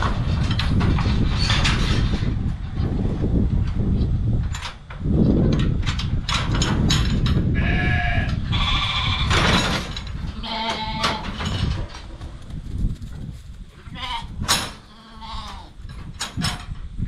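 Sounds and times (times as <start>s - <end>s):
sheep bleating: 13.9s - 15.7s.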